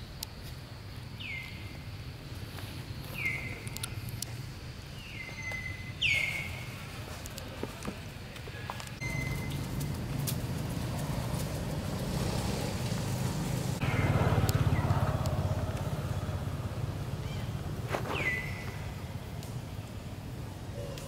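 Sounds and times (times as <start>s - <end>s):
high-pitched calls: 9.0s - 9.8s
low motor hum: 9.0s - 20.5s.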